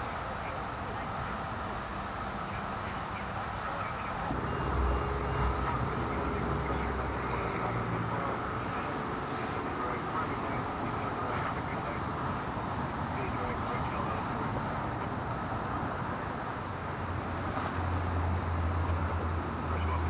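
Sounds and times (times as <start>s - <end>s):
diesel engine idling: 0.0s - 13.2s
freeway traffic noise: 0.0s - 20.0s.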